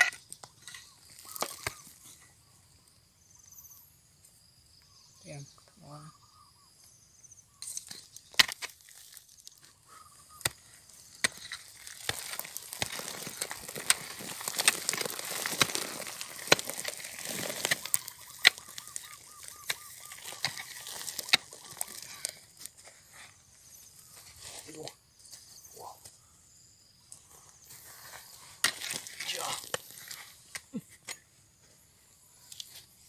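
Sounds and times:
dirt and grit pattering down: 0.0s - 2.2s, 7.6s - 24.7s, 27.6s - 31.2s.

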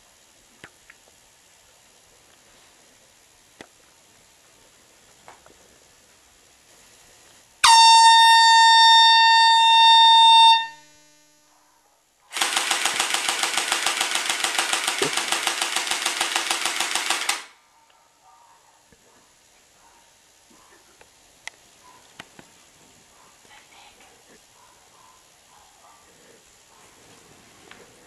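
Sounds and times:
steady horn blast: 7.6s - 11.4s
harsh pulsing buzzing horn: 7.6s - 11.5s.

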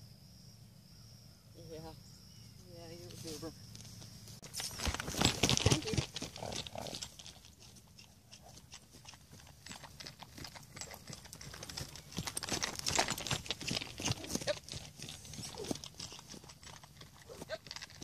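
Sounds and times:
horse hoofbeats cantering on grass: 4.0s - 18.0s.

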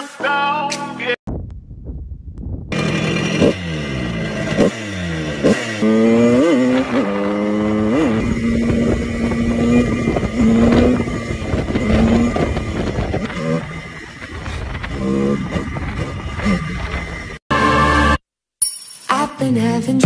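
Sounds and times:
moped engine shifting gears: 2.7s - 18.0s.

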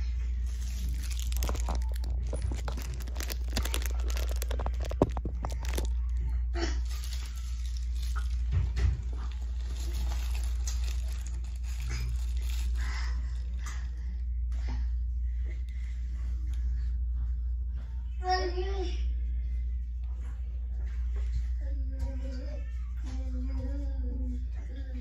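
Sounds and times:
steady low hum: 0.0s - 25.0s
close rustling and crinkling: 0.2s - 14.0s.

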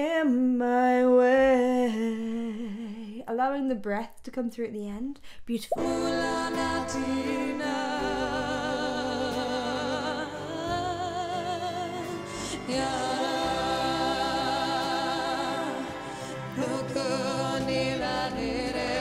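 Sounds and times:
woman singing with vibrato: 0.0s - 3.3s, 5.7s - 19.0s
acoustic guitar: 5.8s - 19.0s
double bass: 5.8s - 19.0s.

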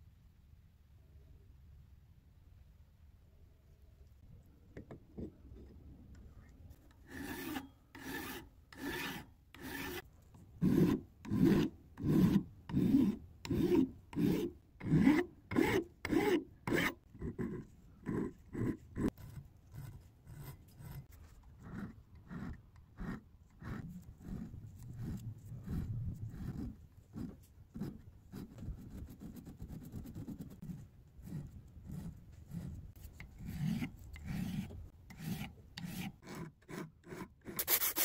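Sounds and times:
hand file rasping on metal: 7.0s - 38.0s.

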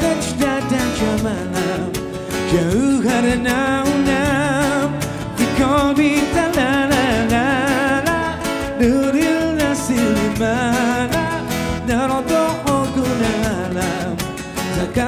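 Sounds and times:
acoustic guitars: 0.0s - 15.0s
electric bass: 0.0s - 15.0s
person singing with vibrato: 0.0s - 15.0s.

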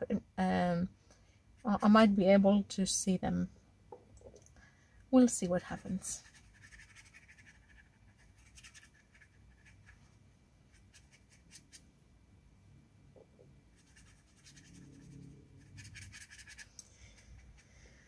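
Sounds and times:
brush scratching on paper: 5.7s - 11.8s, 13.7s - 17.7s.

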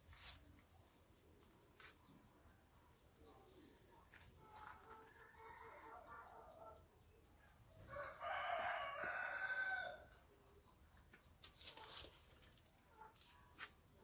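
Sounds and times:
rooster crowing: 7.9s - 10.1s.

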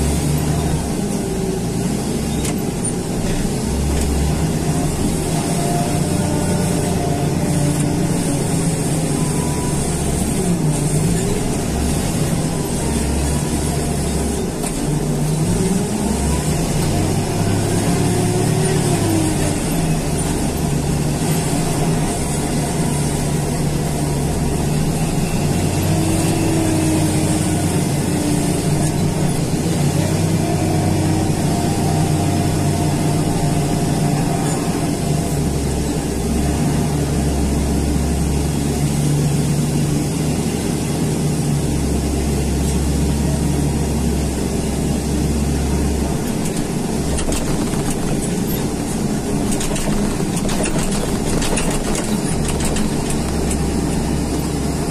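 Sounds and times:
diesel engine running: 0.0s - 54.9s.

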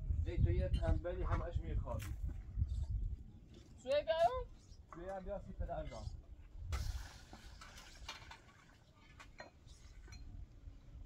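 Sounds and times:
light clinks of hard objects: 7.5s - 10.6s.

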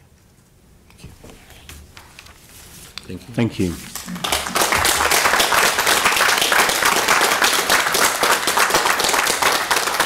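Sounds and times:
audience applauding: 3.9s - 10.0s.

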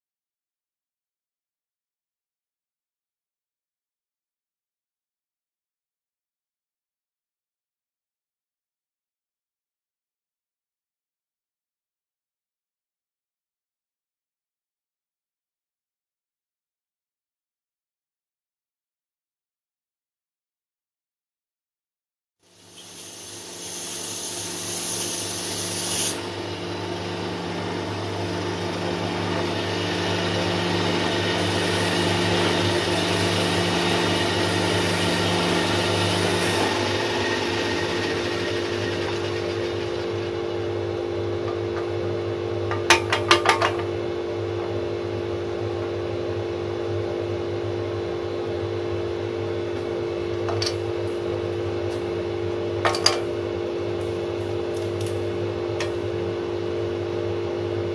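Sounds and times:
bandsaw running: 22.9s - 41.4s
blade cutting through wood: 23.1s - 26.6s, 27.9s - 40.2s.

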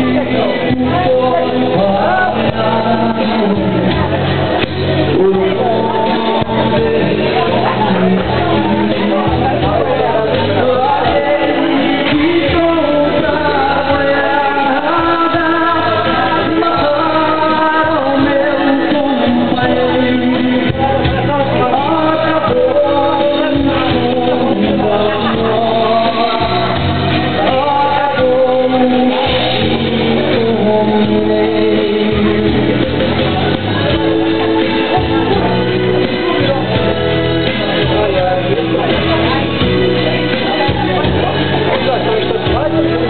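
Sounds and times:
amplified musical accompaniment: 0.0s - 43.0s
man singing into a microphone: 0.0s - 43.0s.

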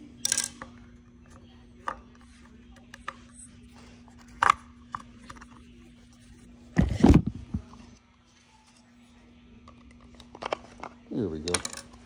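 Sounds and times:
metal tools clicking on workbench: 0.2s - 0.7s.

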